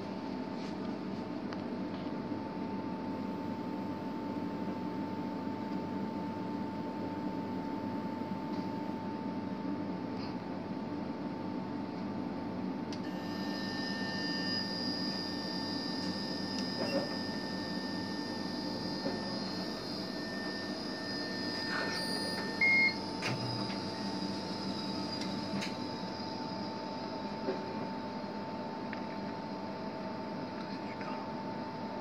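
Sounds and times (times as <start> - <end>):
electrical hum: 0.0 - 32.0
high whining tones: 13.0 - 27.9
short beep: 19.1 - 23.1.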